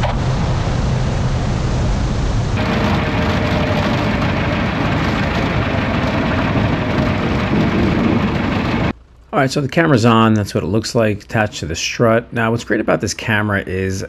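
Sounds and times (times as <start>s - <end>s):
rushing air: 0.0s - 9.0s
small plane engine and propeller drone: 2.6s - 8.9s.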